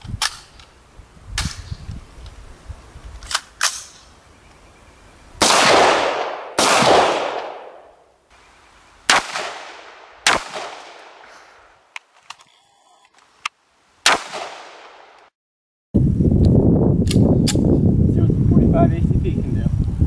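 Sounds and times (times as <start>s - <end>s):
rifle gunshots with echo: 5.4s - 8.0s, 9.1s - 11.3s, 14.0s - 15.2s.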